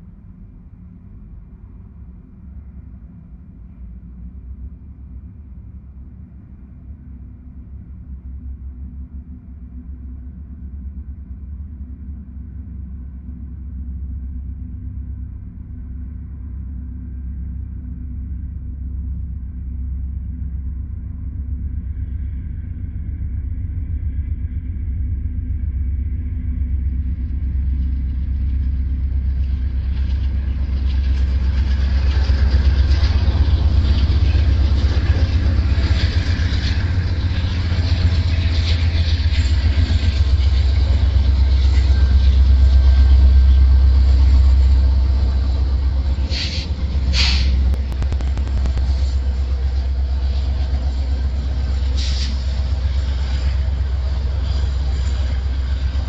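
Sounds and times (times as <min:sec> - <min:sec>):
freight train rumbling past: 0:21.4 - 0:56.0.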